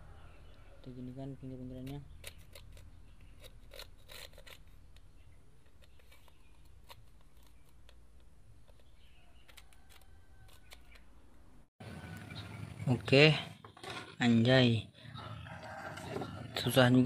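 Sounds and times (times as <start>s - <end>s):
screwdriver scraping glue: 1.1s - 5.0s.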